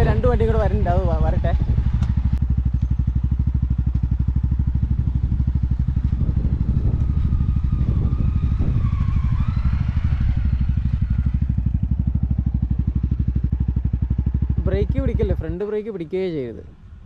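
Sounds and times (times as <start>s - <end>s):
motorcycle engine idling: 0.0s - 17.0s
motorcycle engine wavering: 0.0s - 17.0s.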